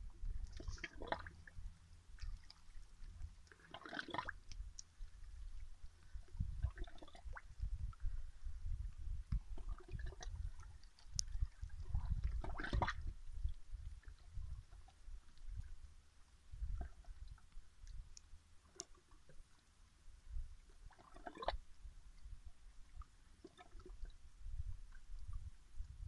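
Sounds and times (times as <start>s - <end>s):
steady low rumble: 0.0s - 3.6s, 4.4s - 18.6s
seawater splashing among rocks: 0.4s - 1.5s, 2.2s - 5.2s, 9.5s - 13.1s.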